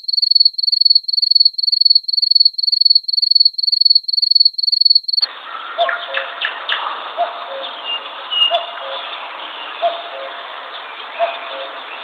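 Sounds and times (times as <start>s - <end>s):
cricket chirping: 0.0s - 5.3s.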